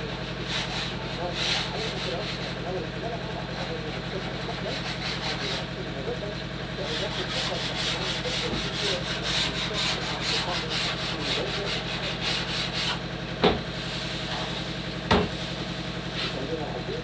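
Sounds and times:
hand sanding wood: 0.0s - 5.9s, 6.8s - 13.0s, 16.1s - 16.7s
steady machine hum: 0.0s - 17.0s
sharp knock: 15.1s - 15.3s.

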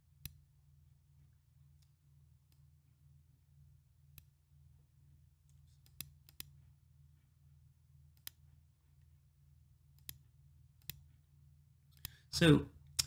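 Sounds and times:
low steady hum: 0.0s - 13.0s
computer mouse clicks: 5.5s - 6.6s, 8.1s - 8.5s, 10.0s - 10.2s, 10.8s - 11.1s, 11.9s - 12.2s.

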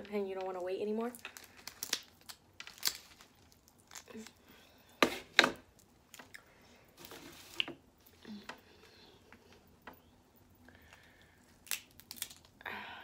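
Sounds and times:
crab shells cracking: 1.2s - 4.4s, 11.6s - 12.6s.

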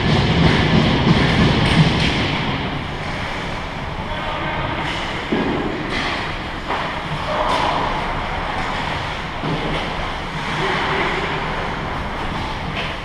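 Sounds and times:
skating and arena noise: 0.0s - 13.0s
distant shouts: 7.2s - 8.5s.

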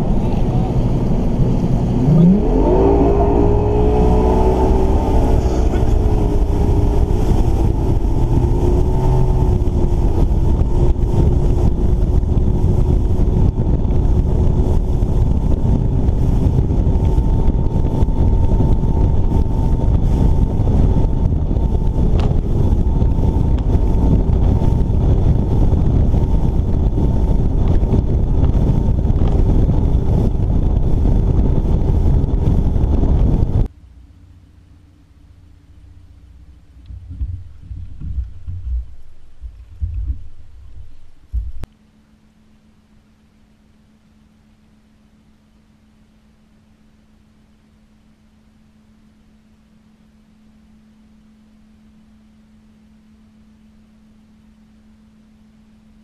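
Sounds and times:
water rushing past hull: 0.0s - 33.7s
wind buffeting microphone: 0.0s - 33.7s, 36.8s - 41.7s
outboard motor whine: 0.0s - 56.0s.

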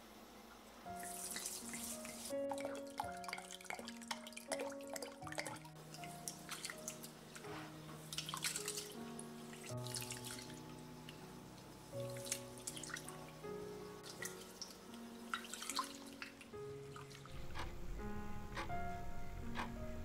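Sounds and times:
background music of held notes: 0.8s - 20.0s
water splashes and drips: 1.0s - 11.3s, 12.0s - 13.4s, 14.0s - 17.7s.

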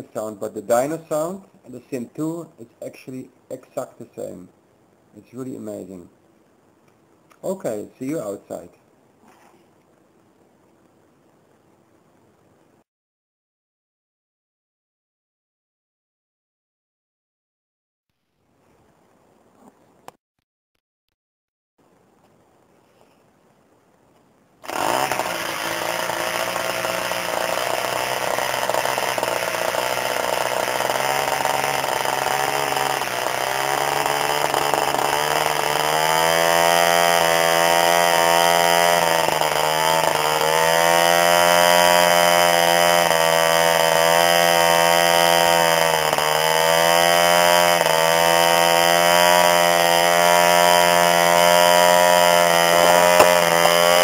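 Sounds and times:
model diesel engine running: 24.7s - 54.0s.

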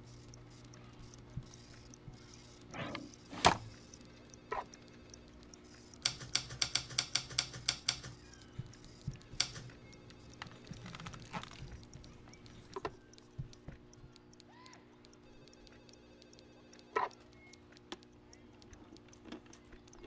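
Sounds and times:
typewriter keys clacking: 6.0s - 8.3s.

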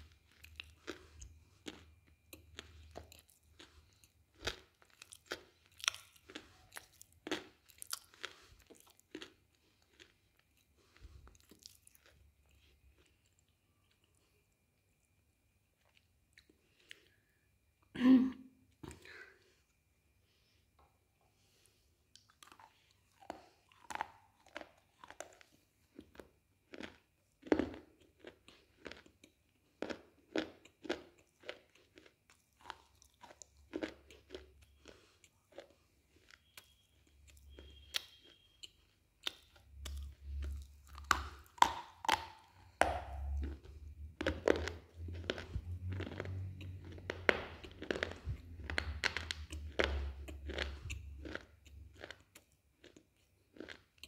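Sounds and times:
crunching slate with teeth: 39.8s - 54.0s.

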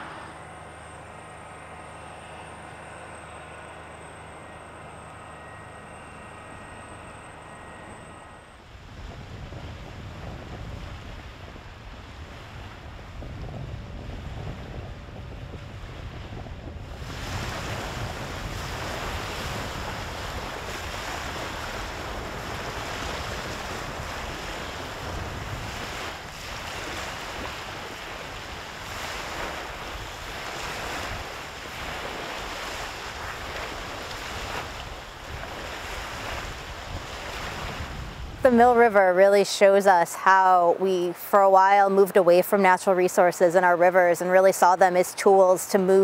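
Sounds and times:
wind: 0.0s - 46.0s
rushing water: 16.9s - 46.0s.

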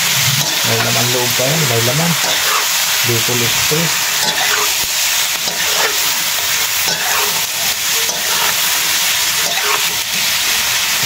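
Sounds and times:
meat sizzling in hot oil: 0.0s - 11.0s
stirring scrapes in wok: 2.2s - 3.0s, 4.0s - 10.3s.

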